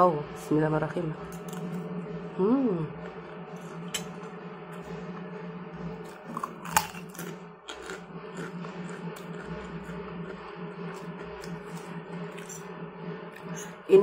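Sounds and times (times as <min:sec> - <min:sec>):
steady low hum: 0:00.0 - 0:14.0
chewing crunchy crackers: 0:06.3 - 0:12.6.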